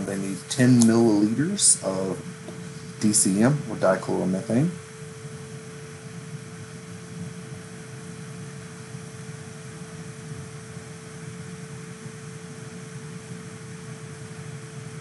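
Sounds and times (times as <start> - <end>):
constant low hum: 0.0 - 15.0
ventilation hiss: 0.0 - 15.0.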